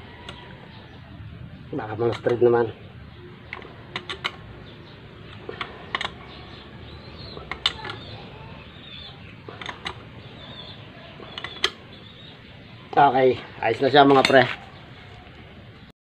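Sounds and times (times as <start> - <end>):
wrench clicking on nuts: 3.5 - 4.4, 5.3 - 6.4, 7.4 - 8.1.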